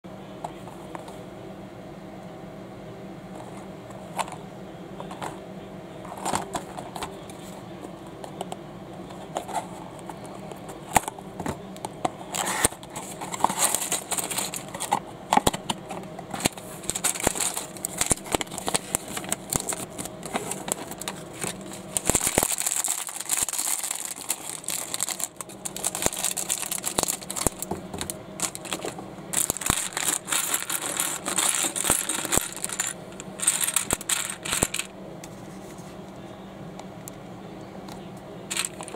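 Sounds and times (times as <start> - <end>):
plastic bag crinkling: 13.1 - 14.9, 16.4 - 34.9
plastic toy bricks rattling: 16.4 - 34.9, 38.5 - 38.9.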